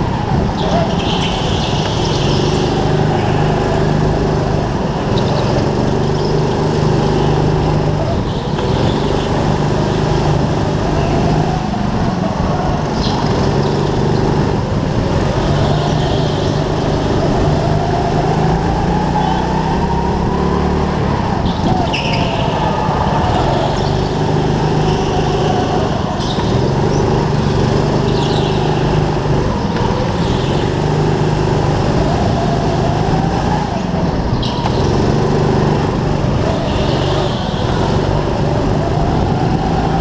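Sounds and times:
go-kart engine revving: 0.0 - 40.0.

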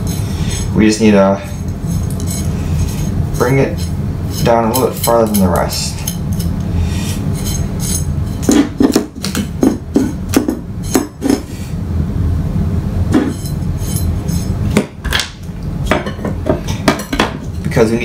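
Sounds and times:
steady low hum: 0.0 - 18.0
metal rods and nuts clinking: 2.0 - 6.5.

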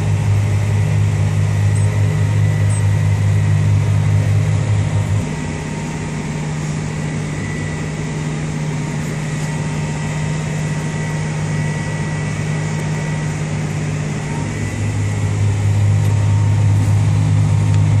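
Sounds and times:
tractor engine humming: 0.0 - 18.0
faint high whine: 1.6 - 18.0.

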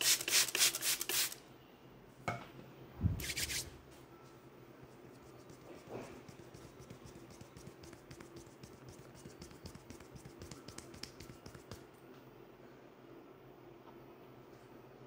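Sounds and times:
fingers tapping and rubbing scalp: 5.3 - 11.9.

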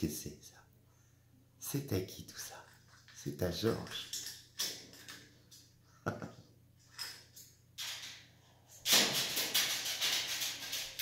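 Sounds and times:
parrot toy clicking and rattling: 8.9 - 11.0.

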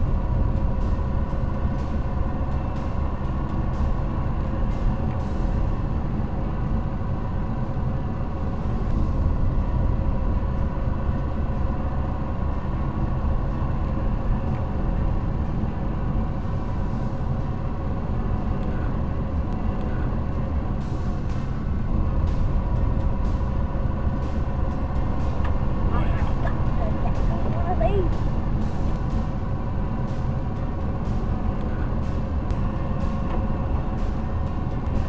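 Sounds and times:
car engine and tyre drone: 0.0 - 35.0.

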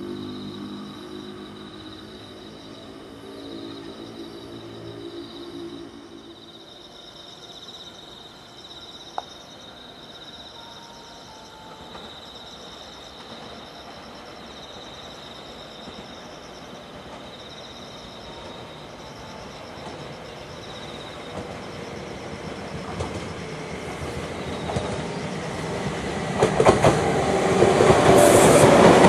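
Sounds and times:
faint train rumble: 0.0 - 29.0
night insects trilling: 0.0 - 29.0.

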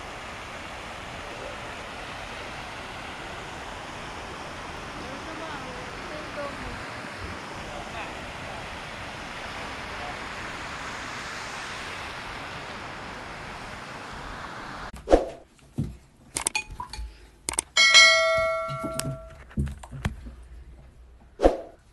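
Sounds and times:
fountain water splashing: 0.0 - 14.9
swishes: 15.0 - 15.4, 21.4 - 21.8
bright bell chime: 17.8 - 19.4.

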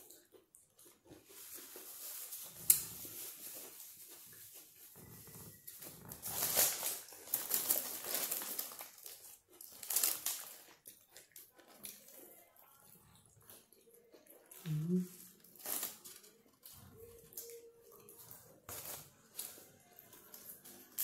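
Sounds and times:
chewing: 0.0 - 21.0
food wrapper crinkling: 1.0 - 5.1, 5.8 - 12.4, 15.3 - 17.7, 18.4 - 21.0.

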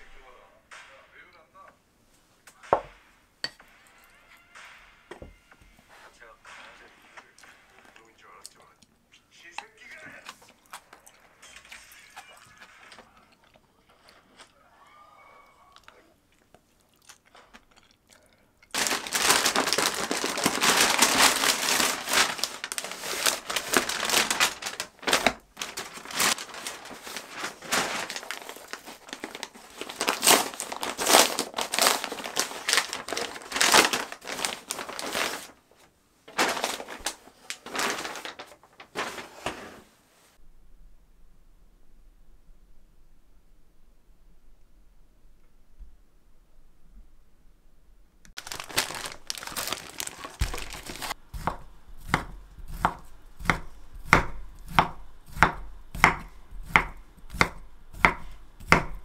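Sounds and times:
paper packaging crinkling: 18.7 - 39.5, 48.4 - 51.6.

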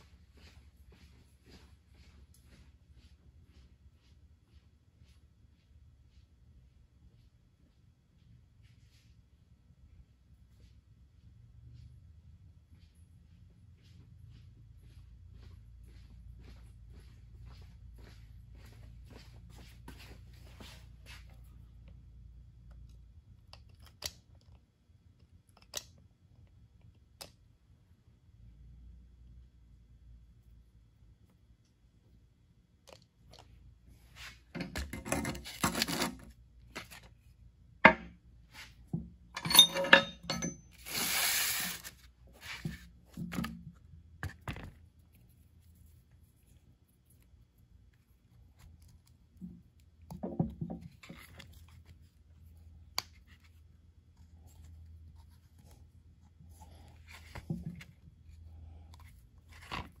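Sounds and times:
faint low hum: 0.0 - 35.4
metal scrape: 39.4 - 42.7.

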